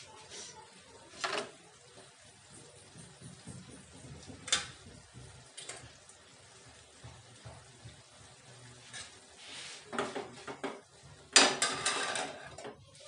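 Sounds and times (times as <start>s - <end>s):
metal plates clinking: 11.3s - 12.8s.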